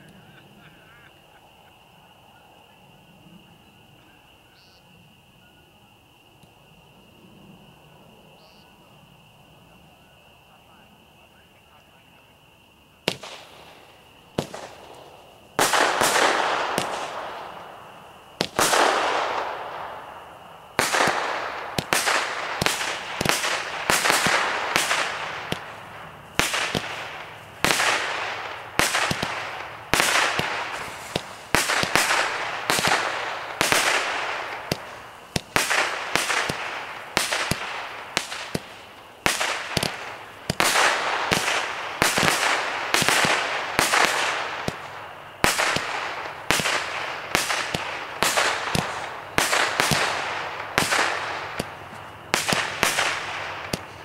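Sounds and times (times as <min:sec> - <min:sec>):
firework shots banging: 0:13.0 - 0:54.0.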